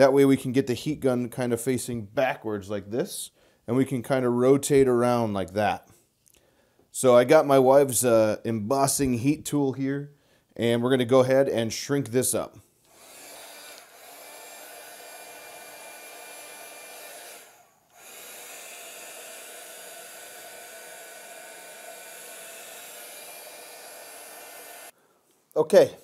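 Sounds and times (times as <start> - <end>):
heat gun blowing: 12.8 - 25.0.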